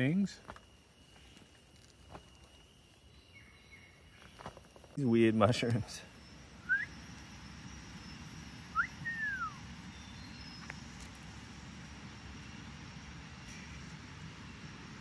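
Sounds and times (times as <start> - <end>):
forest background: 0.0 - 15.0
bird whistling call: 6.6 - 7.1, 7.8 - 10.8.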